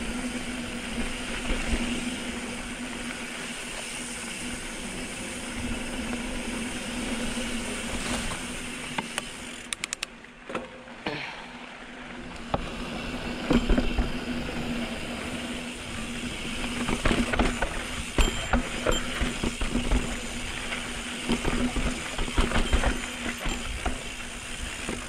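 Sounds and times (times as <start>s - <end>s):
mountain bike rattling: 0.0s - 11.0s, 11.8s - 25.0s
bike knocks and clicks: 16.7s - 25.0s.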